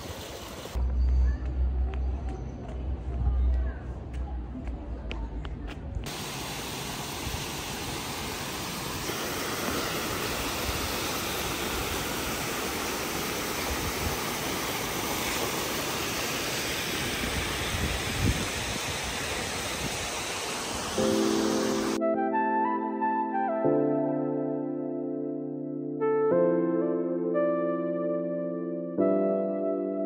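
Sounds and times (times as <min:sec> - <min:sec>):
waterfall rushing: 0:06.1 - 0:22.0.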